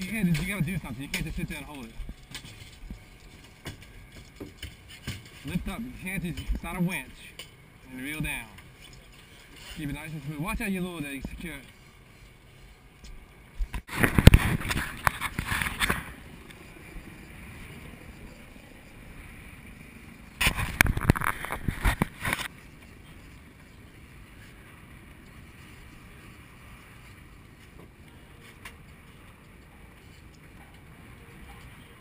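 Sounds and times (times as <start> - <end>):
sea noise: 0.0 - 32.0
wind: 0.0 - 32.0.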